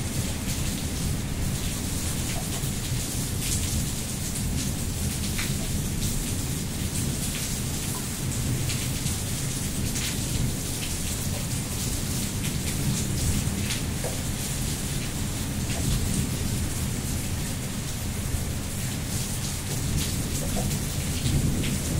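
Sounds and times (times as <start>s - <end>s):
heavy rain hissing: 0.0s - 21.9s
raindrop taps: 2.3s - 2.8s, 13.6s - 14.4s, 15.0s - 16.1s, 20.0s - 21.8s.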